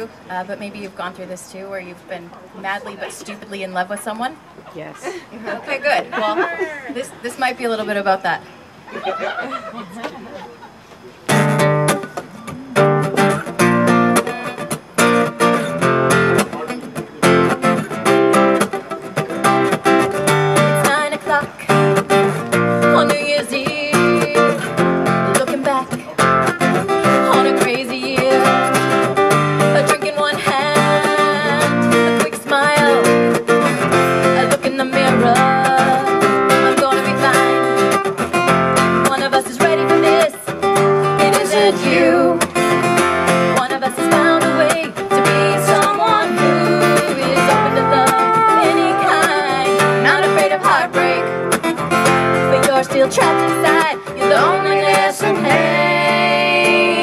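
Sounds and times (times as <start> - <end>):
acoustic guitar strummed and picked: 11.3 - 57.0
person singing: 22.8 - 37.8, 41.1 - 42.6, 43.6 - 57.0.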